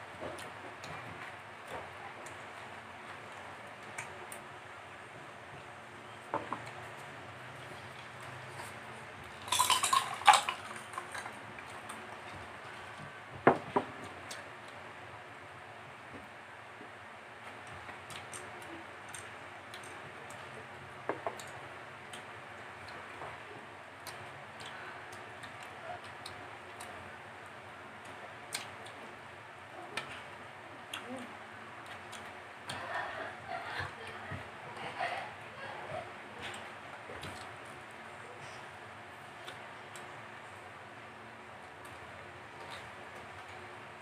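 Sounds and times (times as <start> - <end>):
steady background noise: 0.0 - 44.0
dishes clinking: 9.5 - 11.4.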